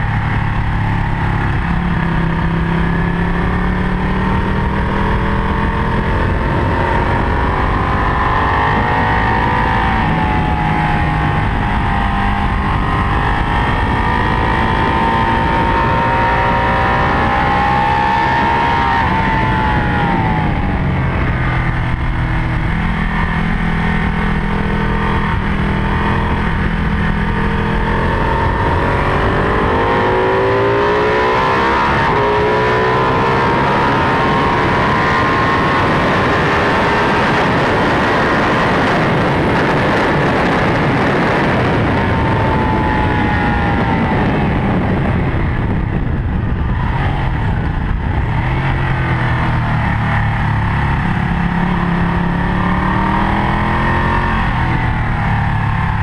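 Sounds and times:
motorcycle engine running hard: 0.0 - 56.0.

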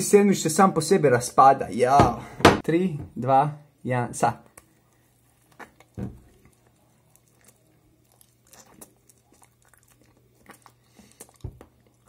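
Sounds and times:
person chewing food: 4.4 - 12.0.

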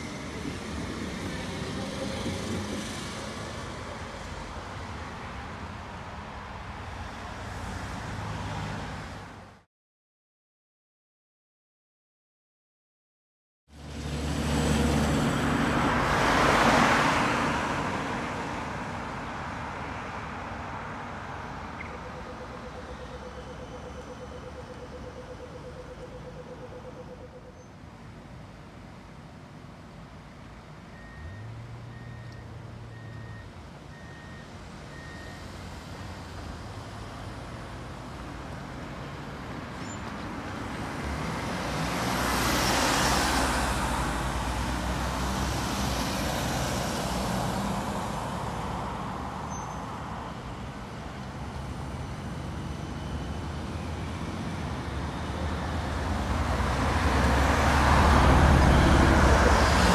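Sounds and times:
road traffic passing: 0.0 - 9.7, 13.7 - 59.9
minibus driving by: 13.8 - 25.7, 30.1 - 59.9
short beeps: 31.0 - 35.4.

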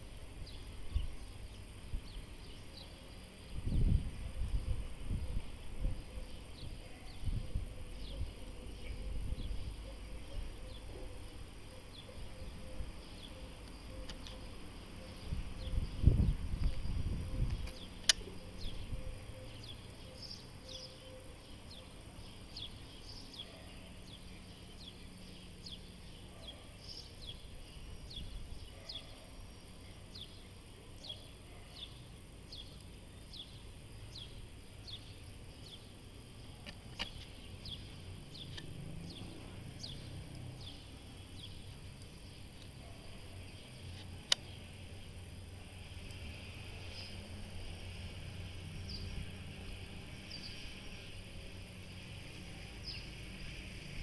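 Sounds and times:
sharp clicks: 17.5 - 18.4, 38.4 - 38.8, 43.9 - 44.6.

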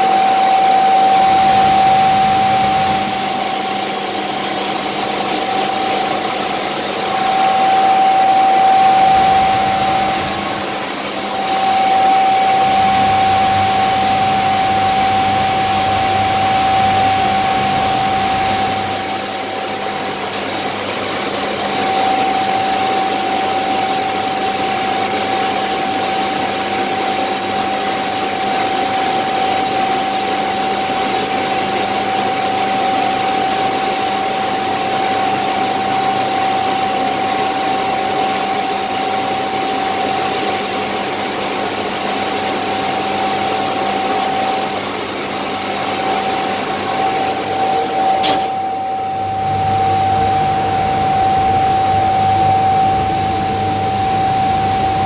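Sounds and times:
high electrical whine: 0.0 - 55.0.

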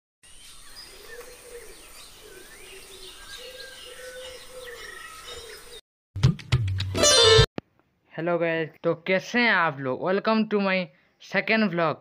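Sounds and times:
birds chirping and whistling: 0.2 - 5.8
low arching bird calls: 0.3 - 5.8.

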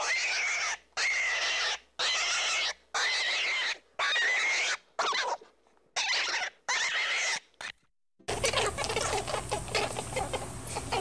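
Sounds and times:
baby rabbits squealing: 0.0 - 11.0.

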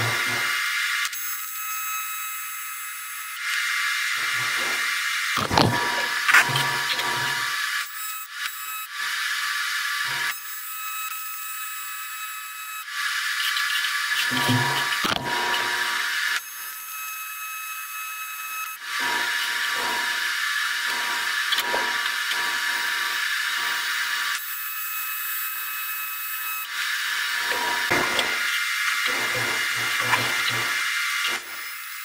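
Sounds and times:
welding arc buzzing: 0.0 - 32.0
welding crackle: 27.2 - 31.7.

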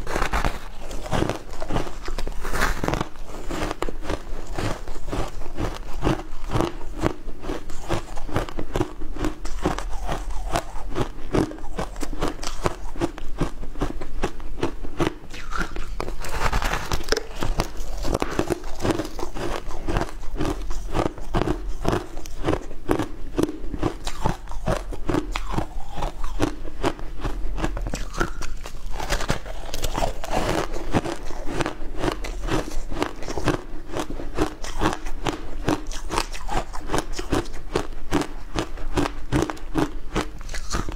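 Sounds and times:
crunchy ice being chewed: 0.0 - 40.9.

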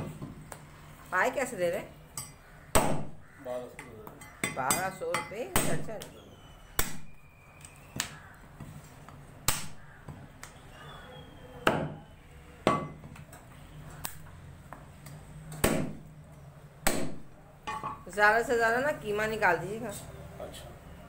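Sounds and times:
meat cleaver chopping on wood block: 15.6 - 16.0.

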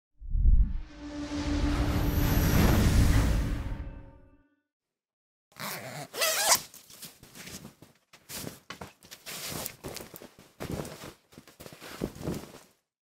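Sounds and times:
fabric rustling: 5.6 - 12.9.

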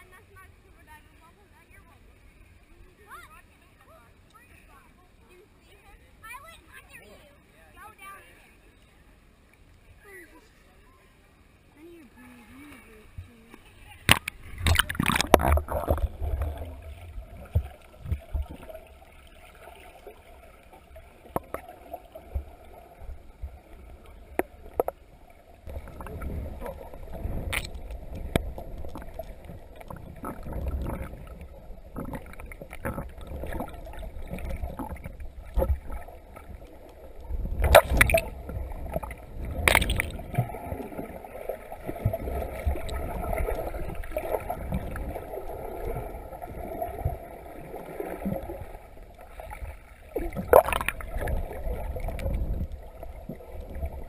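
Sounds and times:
muffled underwater rumble: 12.2 - 54.0.

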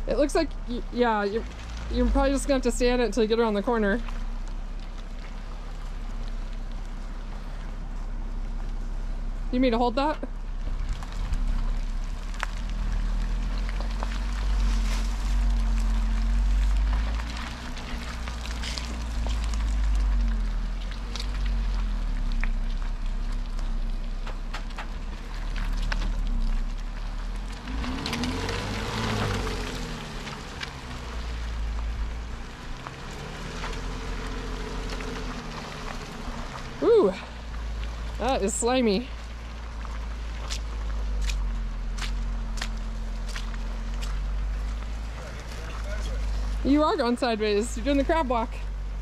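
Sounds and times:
car engine rumbling at crawl: 0.0 - 49.0
small clicks and crackles: 3.8 - 9.0, 10.1 - 48.9
footsteps on dry twigs: 10.7 - 36.8, 39.2 - 46.6.

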